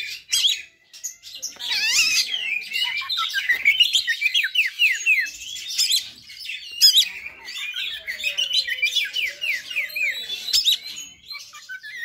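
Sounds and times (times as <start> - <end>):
bird whistled song: 0.0 - 12.0
bird sharp chips: 1.4 - 6.2.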